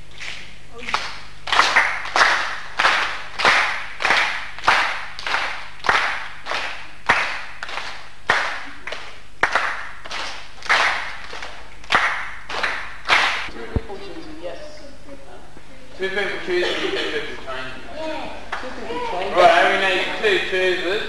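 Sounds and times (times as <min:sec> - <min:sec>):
group clapping in rhythm: 0:00.0 - 0:13.5, 0:18.5 - 0:18.8.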